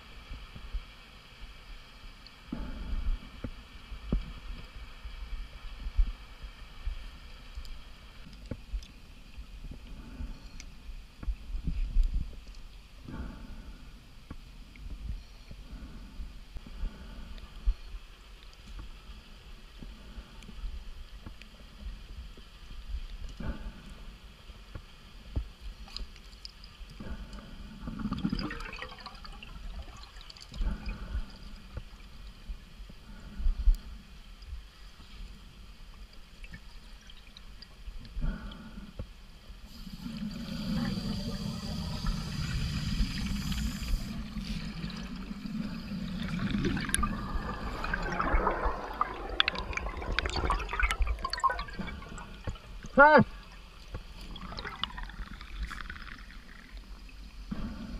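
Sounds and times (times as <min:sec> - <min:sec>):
small clicks and ticks: 0:07.5 - 0:12.8, 0:18.3 - 0:19.0, 0:24.6 - 0:28.1
underwater breath bubbles: 0:27.0 - 0:31.8, 0:39.7 - 0:53.0, 0:54.0 - 0:56.9.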